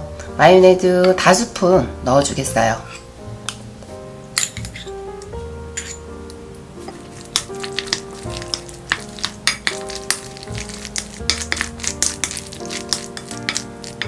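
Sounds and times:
soft background music: 0:00.0 - 0:14.0
spoon stirring wet food: 0:06.8 - 0:14.0.

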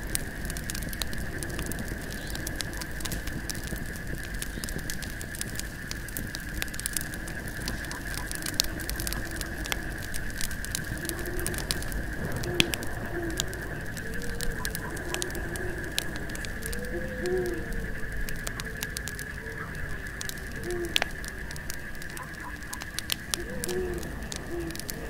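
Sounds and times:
campfire crackling and popping: 0:00.0 - 0:25.0
crickets chirring: 0:00.0 - 0:25.0
owl hooting: 0:07.7 - 0:10.0, 0:12.4 - 0:17.9, 0:19.3 - 0:21.2, 0:22.1 - 0:25.0.

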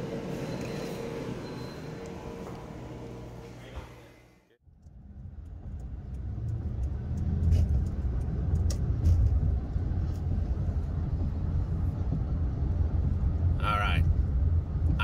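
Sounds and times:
car road and engine rumble: 0:04.6 - 0:15.0.

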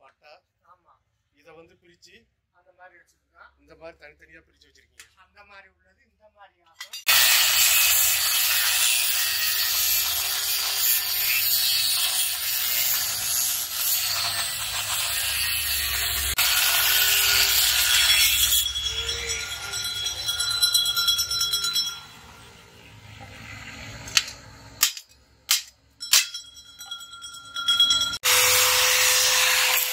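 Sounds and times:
angle grinder cutting steel: 0:06.8 - 0:29.9
sharp metal knocks: 0:24.0 - 0:27.0.

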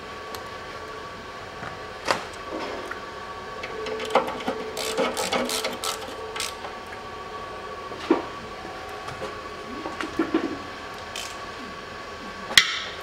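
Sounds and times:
hand tool clicking: 0:04.8 - 0:06.6.

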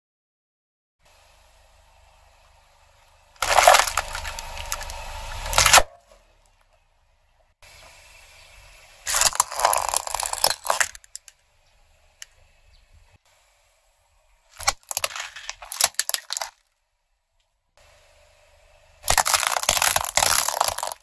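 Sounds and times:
plastic toy cracking under tyre: 0:03.4 - 0:06.0, 0:09.1 - 0:11.4, 0:14.6 - 0:16.7, 0:19.0 - 0:21.0
plastic toys crushed crackling: 0:03.4 - 0:06.0, 0:09.0 - 0:11.4, 0:14.5 - 0:16.8, 0:19.0 - 0:21.0.

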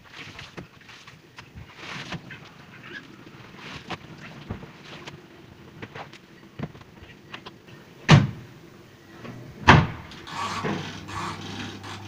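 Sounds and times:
spin-dryer motor humming: 0:09.2 - 0:12.0.

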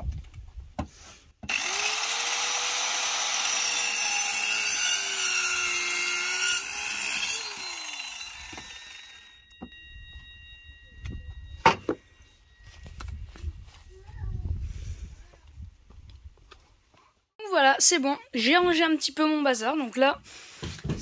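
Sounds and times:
electric power saw cutting wood: 0:01.4 - 0:09.8.

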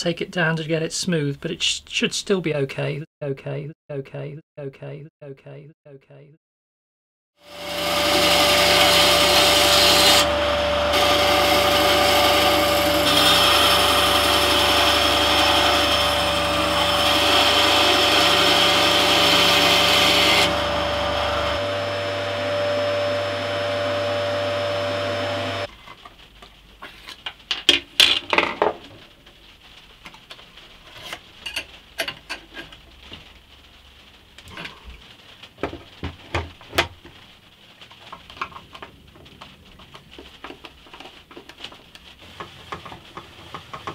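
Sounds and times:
band saw cutting wood: 0:07.4 - 0:25.7.

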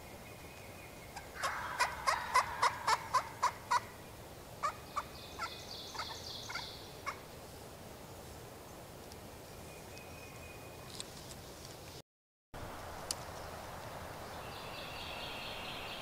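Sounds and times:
turkey calling: 0:01.2 - 0:04.0, 0:04.6 - 0:07.2.

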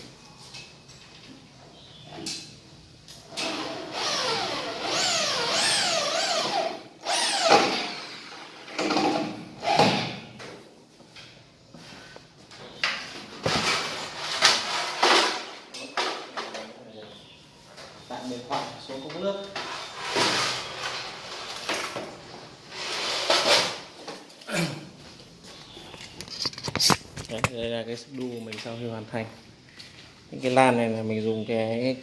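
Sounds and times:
electric drill motor whirring: 0:03.4 - 0:08.4.

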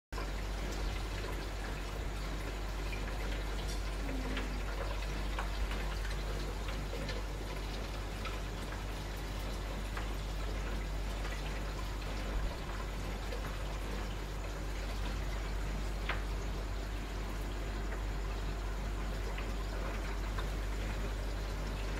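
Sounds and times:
aquarium water bubbling: 0:00.2 - 0:21.9
steady low hum: 0:00.2 - 0:21.9.

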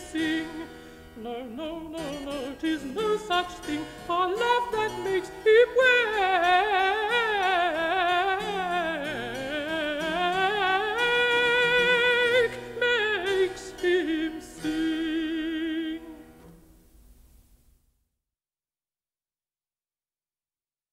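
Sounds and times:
countertenor singing: 0:00.0 - 0:16.4.

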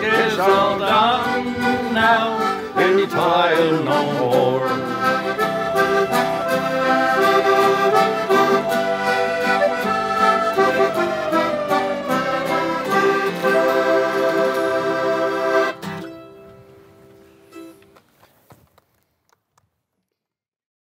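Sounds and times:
button accordion: 0:00.0 - 0:16.6
acoustic guitars: 0:00.0 - 0:18.0
mandolin: 0:00.0 - 0:18.0.

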